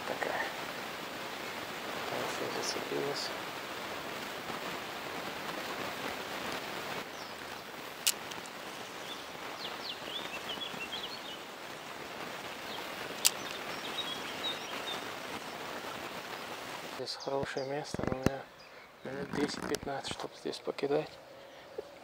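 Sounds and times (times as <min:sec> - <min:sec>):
river rushing: 0:00.0 - 0:17.1
bird chirping: 0:07.1 - 0:11.5, 0:12.6 - 0:15.6, 0:17.0 - 0:20.5
sharp clicks: 0:08.0 - 0:08.6, 0:13.2 - 0:13.6, 0:19.0 - 0:20.3.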